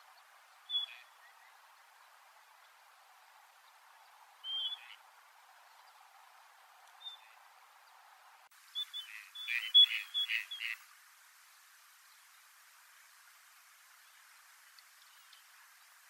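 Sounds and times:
duck whistled calls: 8.9 - 10.8.

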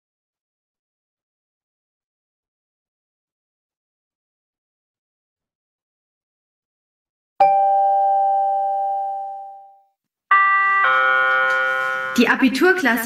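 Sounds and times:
two-note chime: 7.4 - 12.4
bell-like tone: 7.4 - 12.7.

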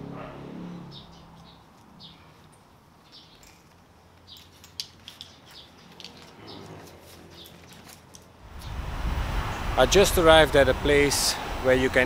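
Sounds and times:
small birds chirping: 0.8 - 8.8
harness buckle clicks: 1.3 - 8.3.

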